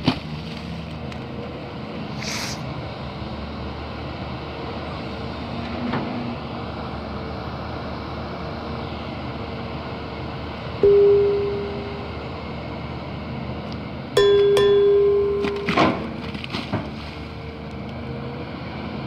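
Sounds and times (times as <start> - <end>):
excavator diesel engine running: 0.6 - 19.0
sudden loud tone: 10.8 - 12.4, 14.2 - 16.4.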